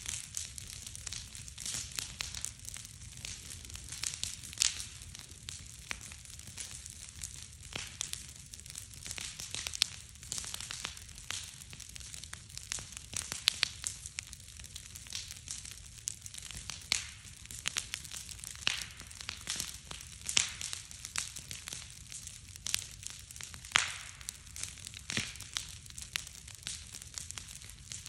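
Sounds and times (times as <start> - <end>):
bonfire crackling and popping: 0.0 - 28.0
low rumble of flames: 0.0 - 28.0.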